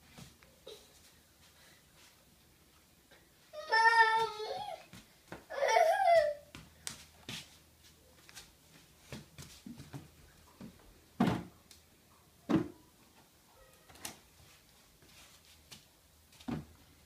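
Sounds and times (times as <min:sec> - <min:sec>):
plastic wastebasket knocks and thumps: 0:11.2 - 0:11.5, 0:12.5 - 0:12.8, 0:16.5 - 0:16.8.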